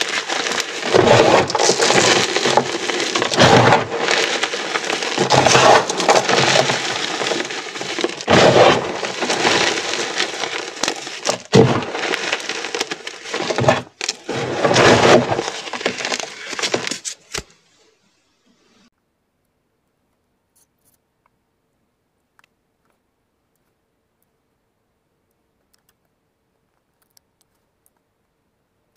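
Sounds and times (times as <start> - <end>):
hands crunching chalk: 0.0 - 17.5.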